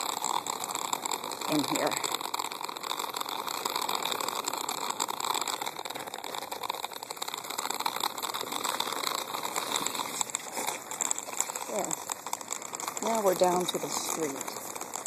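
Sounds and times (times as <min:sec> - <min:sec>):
cart wheels rattling on pavement: 0:00.0 - 0:15.0.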